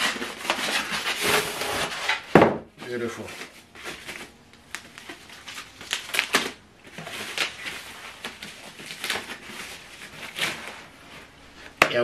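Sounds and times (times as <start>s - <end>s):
plastic wrapping rustling and crinkling: 0.0s - 12.0s.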